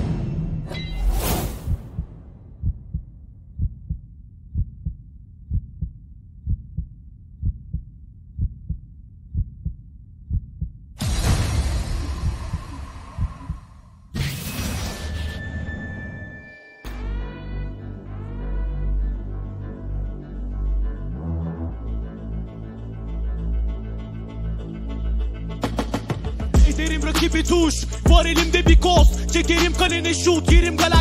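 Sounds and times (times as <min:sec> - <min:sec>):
heartbeat thumps: 0:01.7 - 0:13.9, 0:26.6 - 0:26.8, 0:28.1 - 0:29.2, 0:30.5 - 0:31.0
hit: 0:11.0 - 0:13.8.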